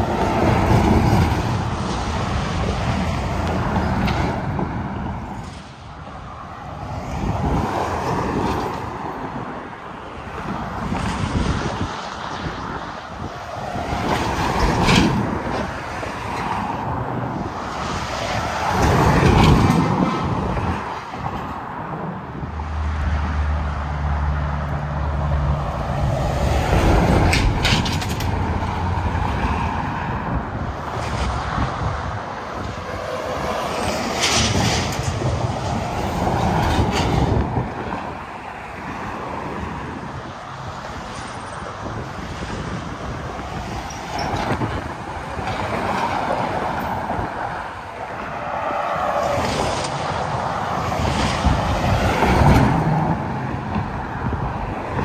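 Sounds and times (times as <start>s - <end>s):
trucks passing on highway: 0.0s - 55.0s.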